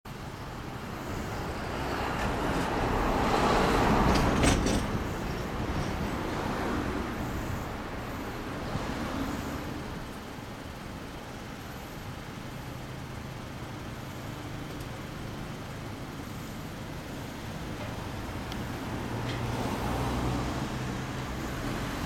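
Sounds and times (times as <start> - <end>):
vehicle passing by: 0.7 - 10.0, 18.0 - 22.0.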